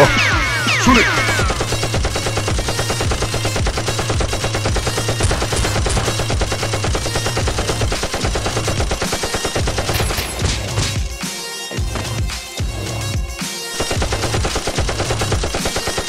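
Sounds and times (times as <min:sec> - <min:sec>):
machine-gun fire: 0:00.9 - 0:11.1, 0:13.8 - 0:16.0.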